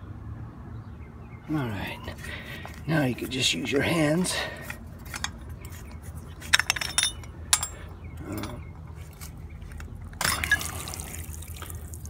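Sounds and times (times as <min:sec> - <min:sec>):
metal fittings clinking: 0:02.6 - 0:10.8.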